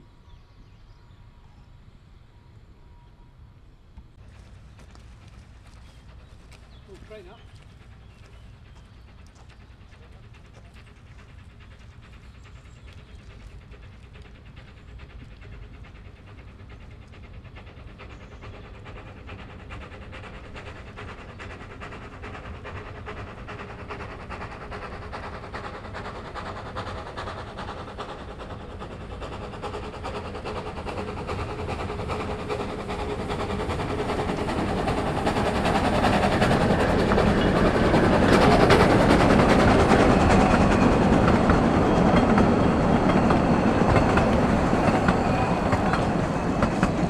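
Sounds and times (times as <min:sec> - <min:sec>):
steam locomotive chuffing: 0:03.5 - 0:47.0.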